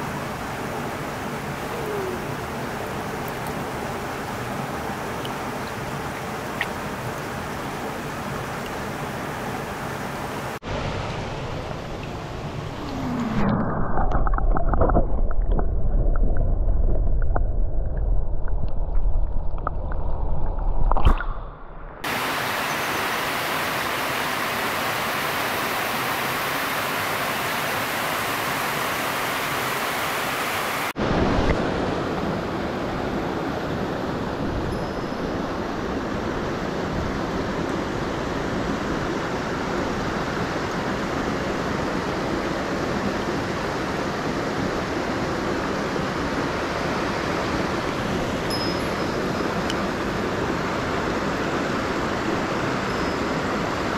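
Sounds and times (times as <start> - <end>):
stream rushing over rocks: 0.0 - 15.6, 22.0 - 34.5
underwater stream rumble: 10.6 - 22.2.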